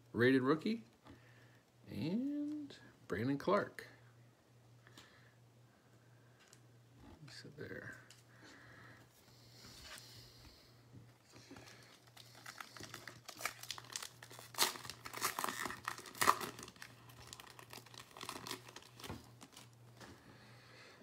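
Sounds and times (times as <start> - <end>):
foil wrapper tearing and crinkling: 11.6 - 19.8.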